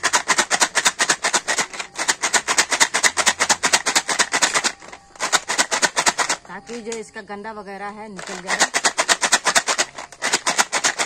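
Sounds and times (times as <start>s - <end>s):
snail shells rattling in plastic jar: 0.0s - 7.2s, 8.1s - 11.0s.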